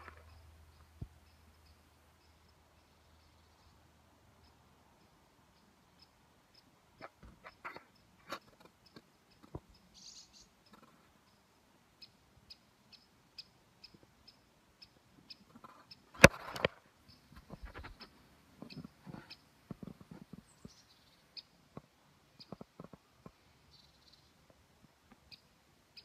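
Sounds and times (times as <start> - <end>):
woodpecker chirping calls: 0.0 - 24.4.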